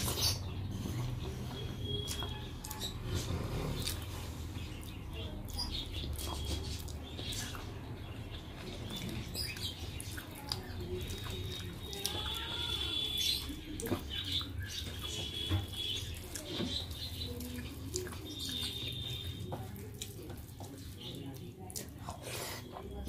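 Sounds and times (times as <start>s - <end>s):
fingers squishing wet rice: 8.6s - 23.0s.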